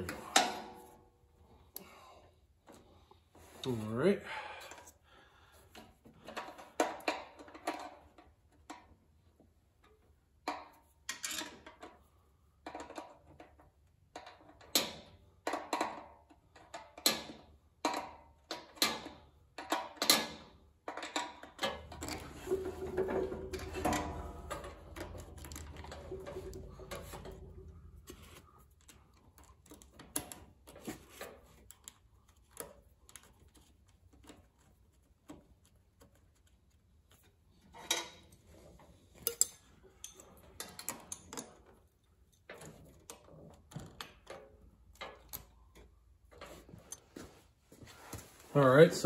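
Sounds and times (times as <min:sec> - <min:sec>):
metallic clinks and taps: 0:20.9 - 0:30.4, 0:39.2 - 0:43.1.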